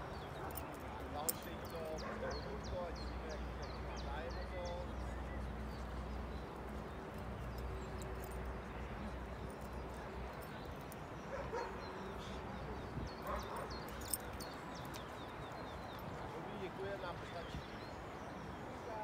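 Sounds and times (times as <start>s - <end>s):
dog barking and yipping: 11.3s - 11.8s.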